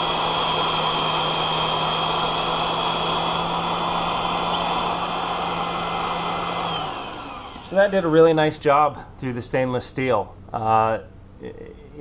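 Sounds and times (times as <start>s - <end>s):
drill bit cutting steel plate: 0.0s - 8.2s
drill press humming: 0.0s - 8.3s.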